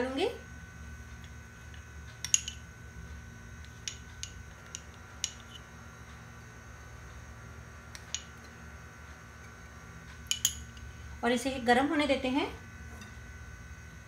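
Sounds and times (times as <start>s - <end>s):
faint steady hum: 0.0s - 14.0s
metal spoon clinking: 2.2s - 2.6s, 3.8s - 5.6s, 10.3s - 10.9s.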